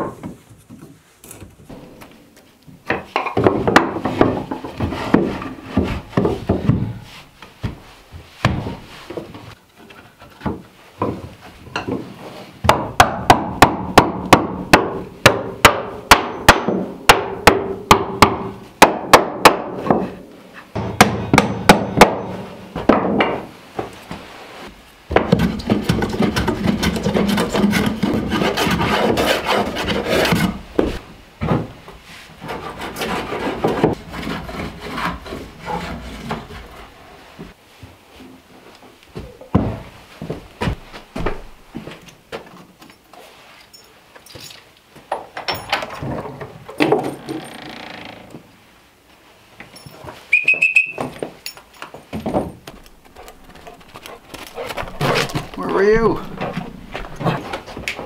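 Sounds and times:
hammer driving nails into wood: 0:12.6 - 0:20.0
hand tool rasping wood: 0:25.3 - 0:30.6, 0:32.4 - 0:37.1.

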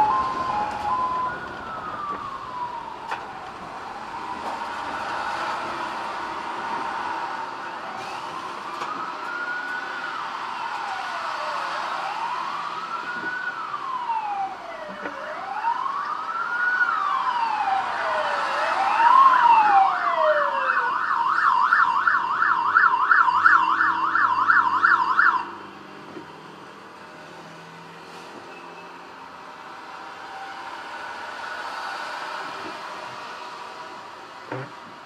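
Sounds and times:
siren wailing and yelping: 0:00.0 - 0:04.9, 0:07.1 - 0:25.5
traffic noise: 0:00.0 - 0:35.0.

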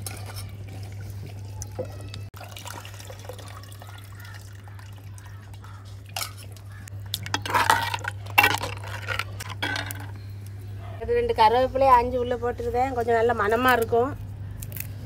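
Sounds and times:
ladle stirring in pot: 0:00.0 - 0:02.2, 0:03.1 - 0:10.2
curry dripping and splashing: 0:00.0 - 0:09.9.

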